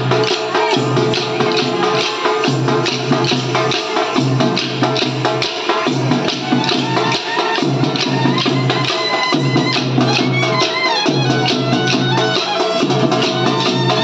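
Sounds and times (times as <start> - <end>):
drums beating fast rhythm: 0.0 - 14.0
wind instrument wavering melody: 6.4 - 14.0.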